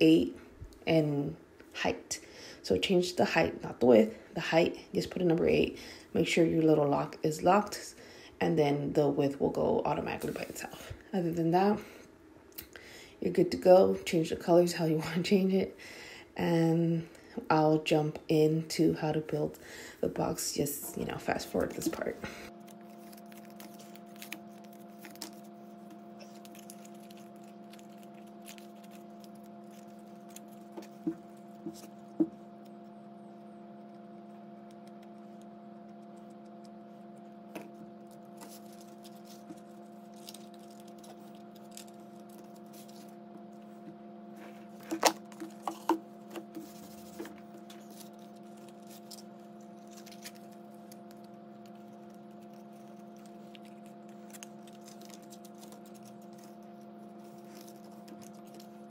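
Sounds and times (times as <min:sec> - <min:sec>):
steady hum: 0:00.0 - 0:58.9
paper crinkling and tapping: 0:21.6 - 0:32.4, 0:44.8 - 0:49.2, 0:49.8 - 0:58.9.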